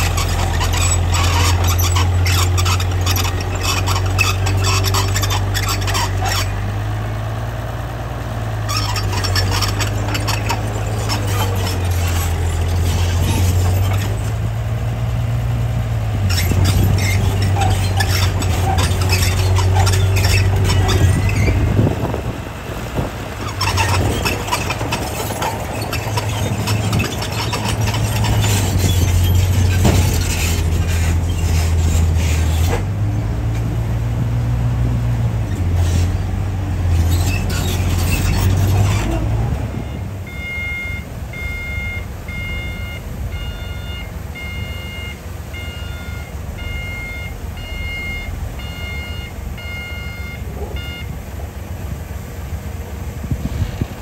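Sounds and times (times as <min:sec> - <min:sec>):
bulldozer diesel engine under load: 0:00.0 - 0:54.0
tracks and blade clanking: 0:08.6 - 0:14.5, 0:16.2 - 0:21.6, 0:23.4 - 0:33.7
reversing alarm beeps: 0:39.8 - 0:51.2.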